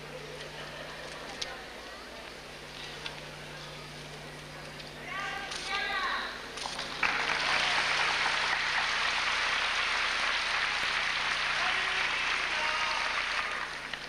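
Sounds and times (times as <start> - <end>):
crowd applauding: 6.7 - 14.0.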